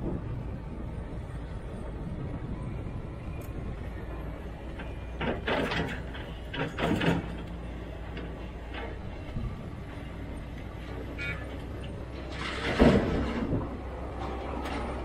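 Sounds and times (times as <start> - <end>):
excavator diesel engine humming: 0.0 - 15.0
bucket scraping dirt and rubble: 12.2 - 13.8.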